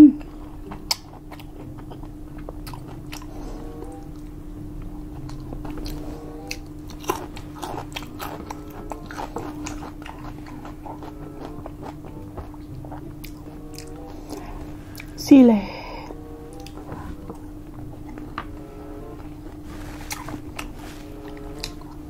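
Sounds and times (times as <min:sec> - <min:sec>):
steady low hum: 0:00.0 - 0:22.0
person chewing and biting: 0:00.2 - 0:15.2, 0:16.5 - 0:18.6, 0:19.2 - 0:22.0
sharp eating clicks: 0:00.6 - 0:03.3, 0:05.2 - 0:13.9.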